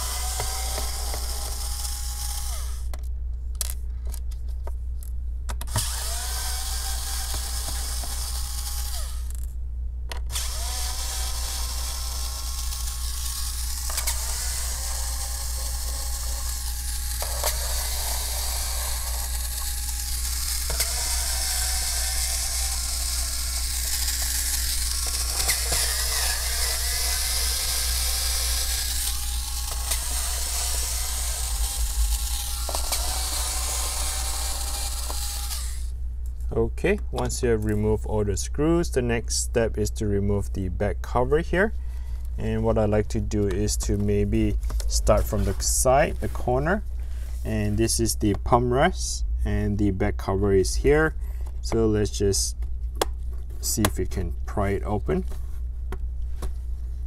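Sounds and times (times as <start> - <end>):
electric screwdriver whirring: 0.0 - 2.9, 5.7 - 9.5, 10.2 - 35.9
steady low hum: 0.0 - 57.0.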